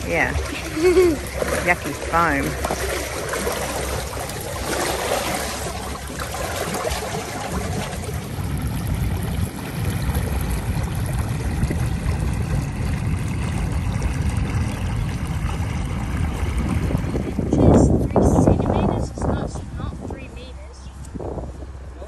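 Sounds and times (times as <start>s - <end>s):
stormwater rushing: 0.0s - 20.5s.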